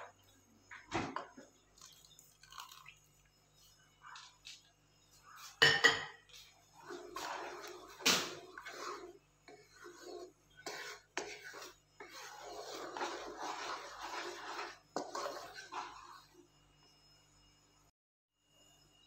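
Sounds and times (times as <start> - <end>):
wooden spoon stirring thick custard: 6.2 - 16.8.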